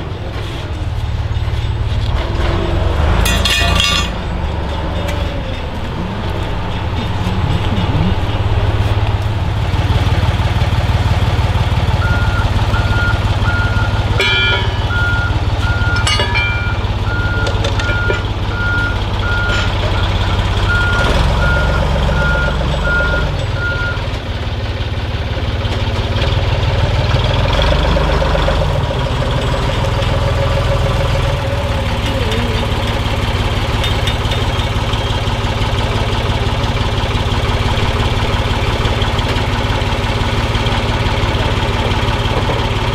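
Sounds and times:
truck engine running: 0.0s - 42.9s
sharp metallic clanks: 1.4s - 8.6s, 14.1s - 15.1s, 15.8s - 18.3s, 33.5s - 35.3s.

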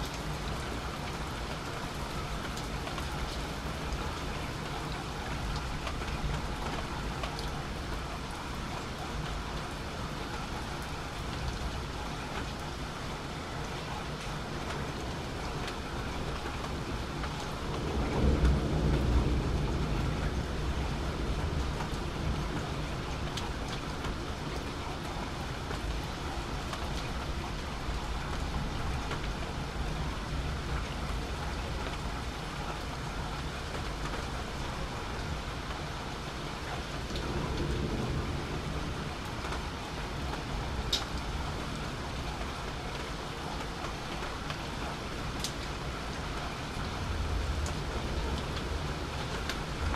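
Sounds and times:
steady rain falling: 0.0s - 49.9s
low rumble of thunder: 14.1s - 35.5s, 36.2s - 45.9s, 46.5s - 49.9s.

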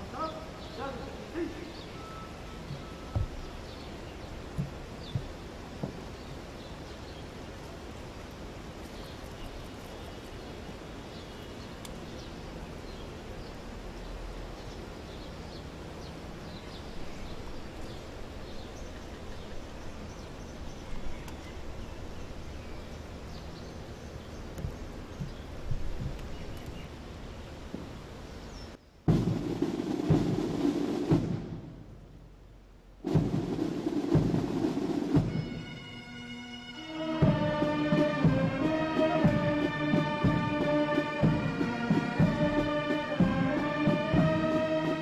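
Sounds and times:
faint bird chirps: 0.1s - 7.3s.

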